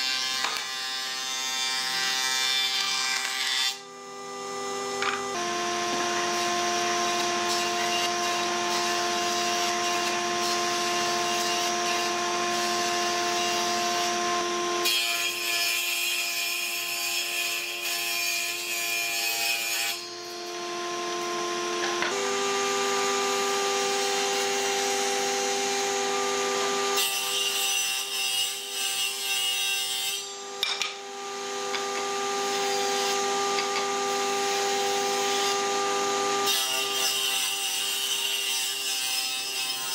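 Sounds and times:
woodworking machine motor whine: 3.8 - 14.8, 20.0 - 27.0, 30.3 - 36.5
cutters cutting wood: 5.0 - 15.4, 19.9 - 29.0.

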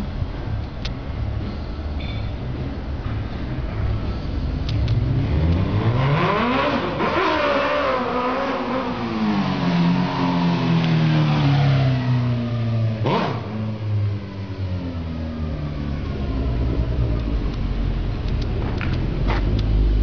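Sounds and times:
motorcycle engine revving: 4.7 - 17.5.

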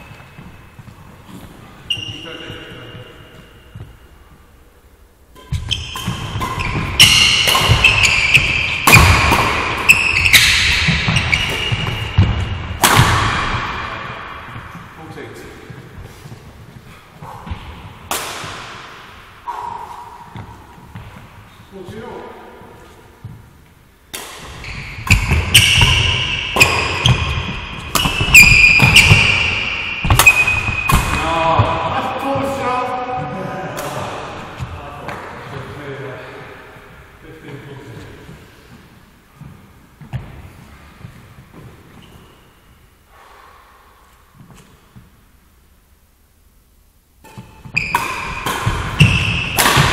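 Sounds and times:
shoes squeaking on court: 0.0 - 4.4, 5.4 - 12.8, 24.4 - 31.3, 39.4 - 42.8, 47.2 - 49.9
footsteps on court floor: 0.0 - 4.5, 14.5 - 18.0, 20.3 - 23.8
racket striking shuttlecock: 5.4 - 14.8, 17.4 - 21.3, 24.1 - 31.3, 33.8 - 34.5, 47.2 - 49.9.

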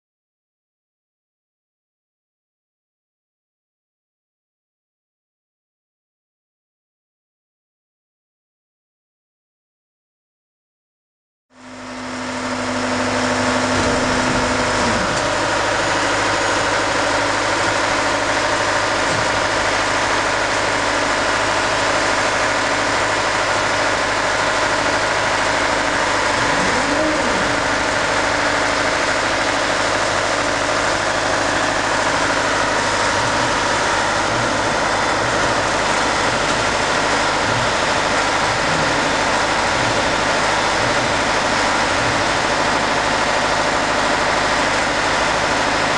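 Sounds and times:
heavy engine idling: 11.6 - 45.9.

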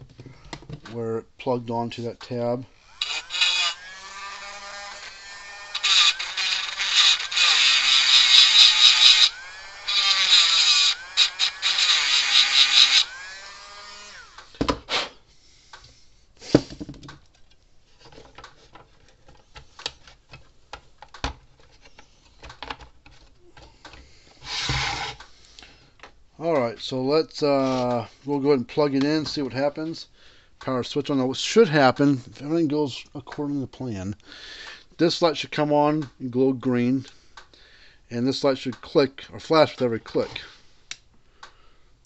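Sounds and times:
rotary power tool whine: 2.8 - 14.6, 24.4 - 25.2
clicks and knocks of parts: 16.8 - 24.1.

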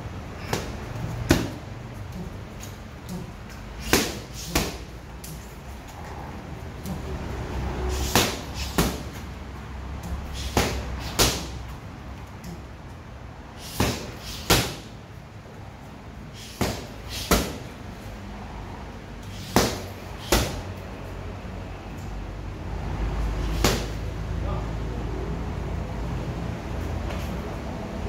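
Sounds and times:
boxing gloves hitting pads: 0.4 - 5.5, 8.0 - 9.3, 10.0 - 11.8, 13.6 - 14.9, 16.4 - 17.7, 19.3 - 20.6, 23.4 - 24.1.

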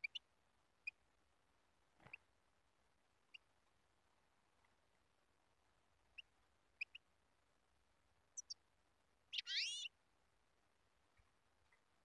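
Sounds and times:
bird chirps: 0.0 - 0.2, 6.1 - 7.1, 8.4 - 8.6, 9.3 - 9.9.

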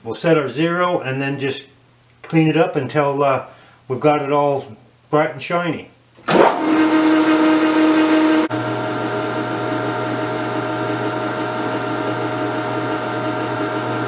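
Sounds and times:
metal lathe motor and gear hum: 6.6 - 14.0.

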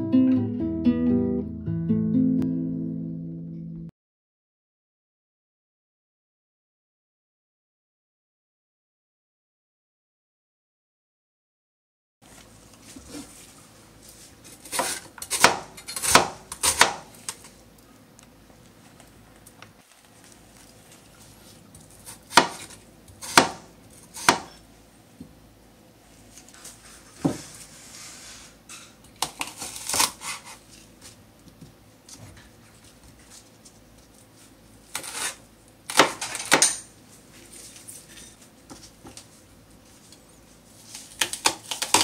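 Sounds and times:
knife chopping on wooden board: 14.6 - 17.1, 22.0 - 24.6.

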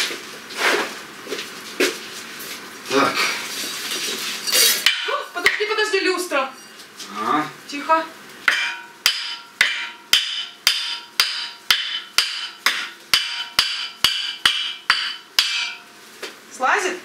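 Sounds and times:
ringing hammer blows: 8.5 - 15.9.

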